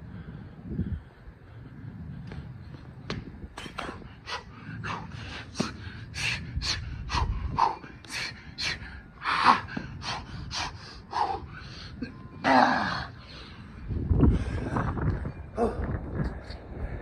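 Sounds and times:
man breathing hard: 0.0s - 2.6s, 3.8s - 15.9s.

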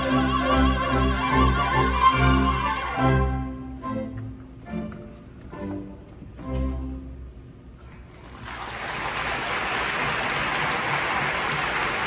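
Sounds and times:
audience applause: 8.2s - 12.0s.

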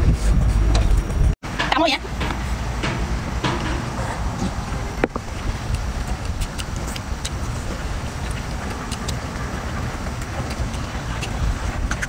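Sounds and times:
wind buffeting microphone: 0.0s - 12.0s
eating clicks: 5.6s - 7.6s, 8.2s - 9.5s, 10.2s - 12.0s.

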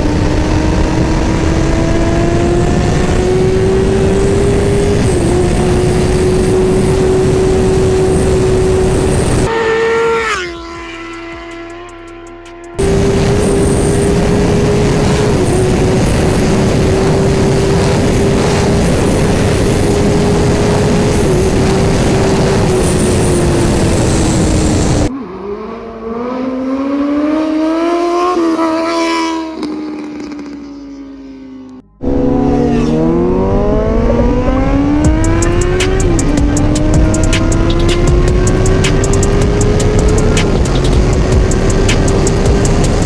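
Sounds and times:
loud wind rush: 0.0s - 9.9s, 12.8s - 25.1s, 32.0s - 43.0s
motorcycle engine revving: 0.0s - 43.0s.

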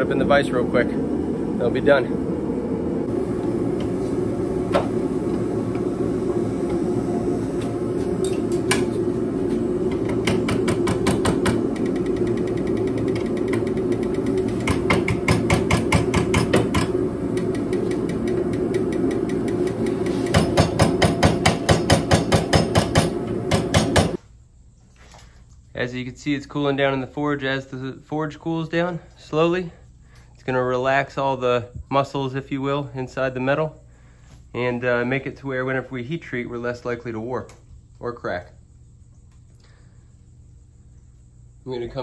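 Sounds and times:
forge burners roaring: 0.0s - 24.2s.

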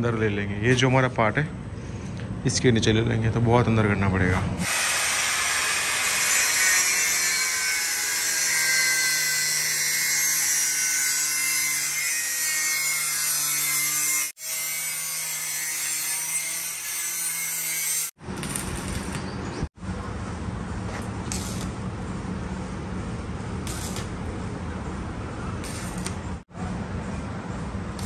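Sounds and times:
angle grinder cutting metal: 4.6s - 19.2s, 23.6s - 24.2s, 25.6s - 26.2s.

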